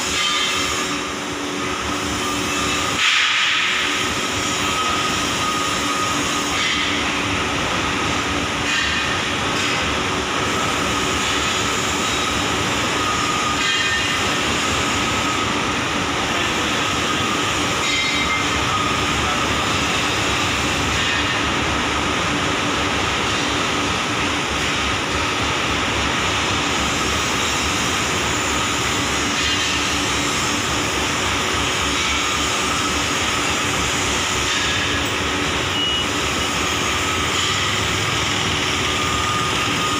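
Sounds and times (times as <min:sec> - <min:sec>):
grinding machine running: 0:00.0 - 0:39.9
faint high whine: 0:34.8 - 0:39.9.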